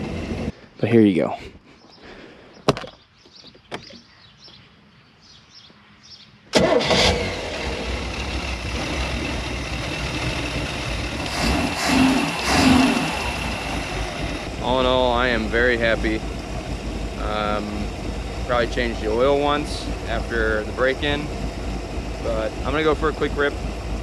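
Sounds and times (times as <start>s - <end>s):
boat engine running: 0.0s - 0.5s, 6.9s - 24.0s.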